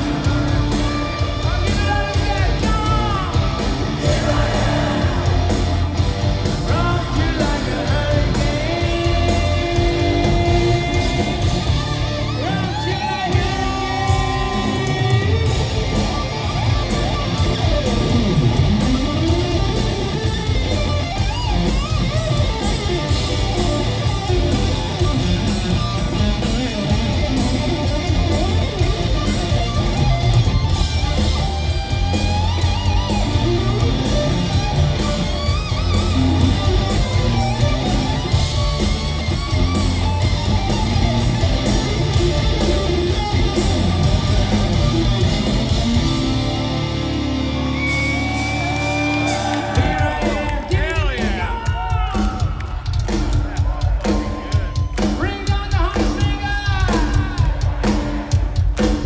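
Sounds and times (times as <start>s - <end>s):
arena crowd: 0.0s - 59.0s
live hard rock band: 0.0s - 59.0s
electric guitar bending notes: 8.1s - 49.4s.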